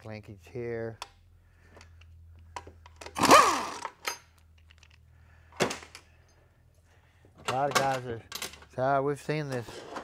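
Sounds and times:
electric ratchet motor whine: 0:03.2 - 0:03.9.

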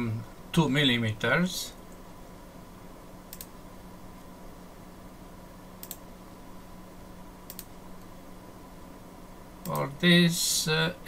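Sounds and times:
faint steady hum: 0:00.0 - 0:11.0
computer mouse button clicking: 0:03.3 - 0:03.5, 0:05.8 - 0:06.0, 0:07.5 - 0:07.7.

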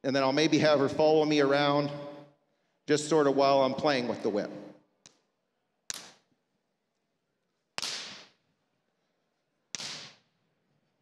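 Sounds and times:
whip cracking: 0:05.9 - 0:06.3, 0:07.8 - 0:08.4, 0:09.7 - 0:10.3.

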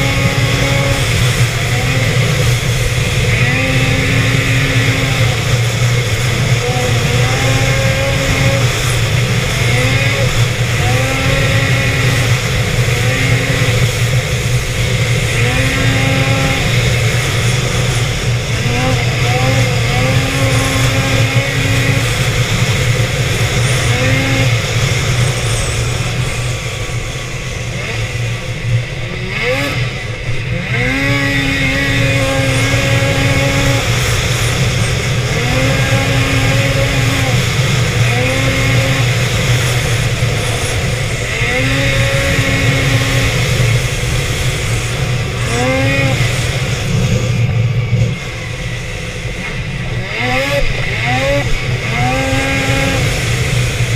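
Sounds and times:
snowmobile engine revving: 0:00.0 - 0:53.9
steady low rush: 0:00.0 - 0:53.9.

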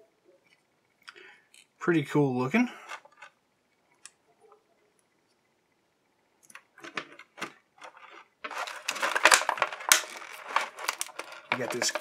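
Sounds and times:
plastic crinkling and crackling: 0:06.5 - 0:12.0.

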